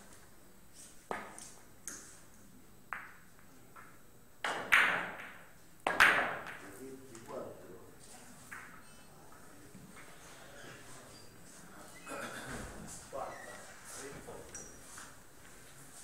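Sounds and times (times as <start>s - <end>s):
billiard balls clicking: 3.0s - 6.6s.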